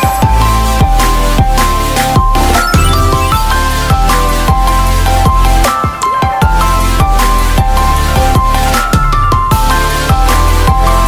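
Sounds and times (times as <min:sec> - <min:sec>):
electronic music with synth: 0:01.8 - 0:08.8.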